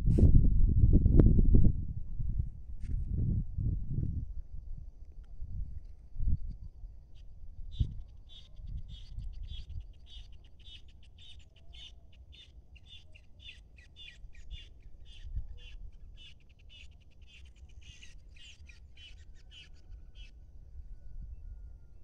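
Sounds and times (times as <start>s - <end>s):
wind on microphone: 0.0s - 10.3s, 14.3s - 16.1s
bird wavering call: 7.8s - 21.8s.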